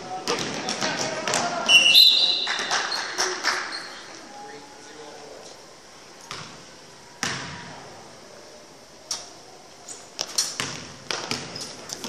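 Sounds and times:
shoe squeaks: 1.7 - 4.1, 11.4 - 12.0
basketball bouncing on hardwood floor: 7.2 - 7.6, 10.6 - 11.6.

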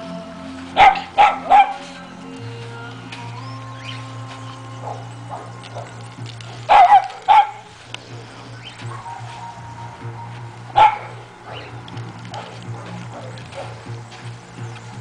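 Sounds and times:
background music: 0.0 - 15.0
puppy barking: 0.7 - 2.0, 4.8 - 6.0, 6.7 - 7.7, 8.8 - 9.2, 10.7 - 13.9.

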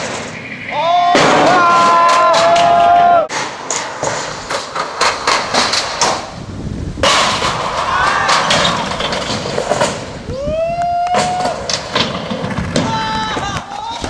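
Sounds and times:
onlookers shouting: 0.7 - 3.3
skateboard clacks and knocks: 1.1 - 6.4, 7.0 - 10.1, 10.8 - 14.0
skateboard rolling on ramp: 1.4 - 14.0.

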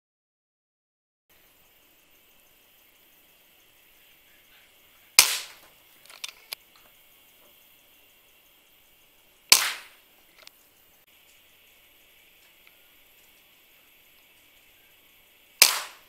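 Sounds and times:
air rifle shots: 5.2 - 6.5, 9.5 - 10.0, 15.6 - 16.0
small clicks and knocks: 5.2 - 7.6.

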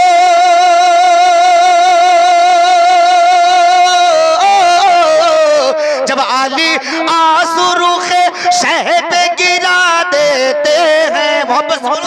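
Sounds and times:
man singing through a microphone: 0.0 - 12.0.

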